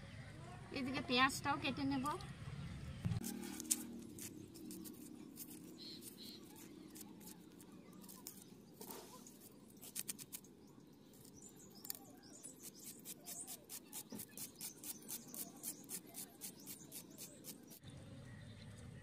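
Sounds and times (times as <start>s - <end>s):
knife slicing onion: 11.6s - 17.8s.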